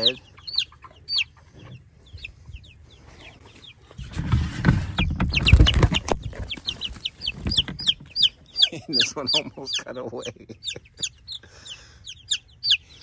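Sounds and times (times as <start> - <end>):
baby chicks peeping: 0.0 - 13.0
rustling and bumping near microphone: 1.4 - 8.2.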